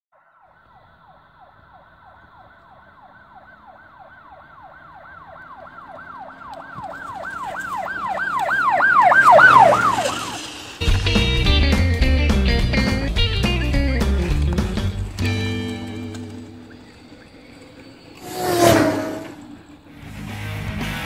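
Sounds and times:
electronic siren wail: 0:00.2 - 0:11.1, 0:15.1 - 0:20.0.

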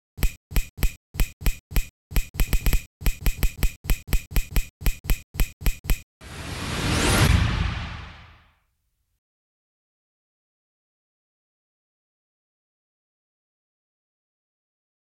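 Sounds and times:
whoosh: 0:06.2 - 0:08.5.

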